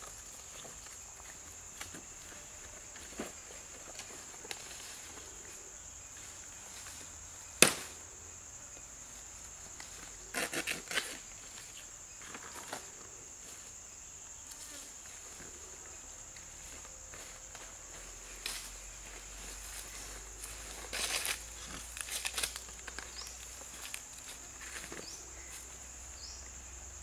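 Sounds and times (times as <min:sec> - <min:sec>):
insects droning: 0:00.0 - 0:27.0
banana leaves snapping and rustling: 0:07.6 - 0:08.0, 0:09.7 - 0:12.9, 0:18.4 - 0:25.5
sharp leaf cracks: 0:07.6 - 0:08.0, 0:09.8 - 0:11.2, 0:20.6 - 0:25.0.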